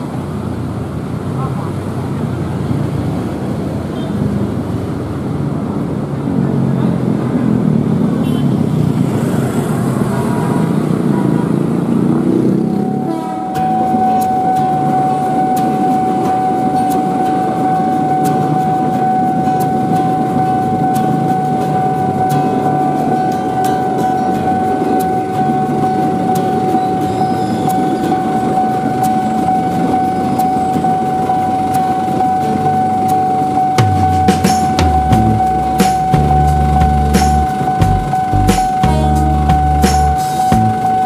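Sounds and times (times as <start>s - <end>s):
road traffic: 0.0s - 41.0s
voices: 1.2s - 2.9s, 5.5s - 41.0s
crossing warning tone with clicking: 12.3s - 41.0s.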